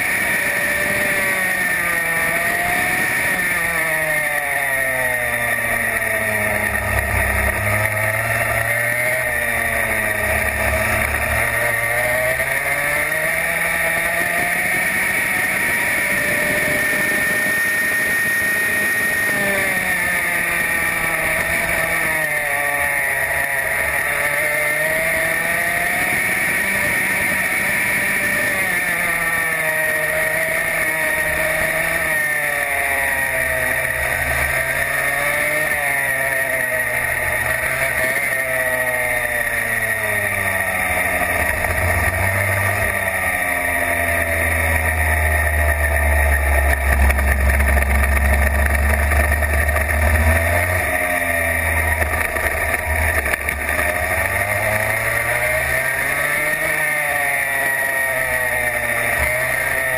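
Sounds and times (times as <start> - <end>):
racing kart engine: 0.0 - 59.9.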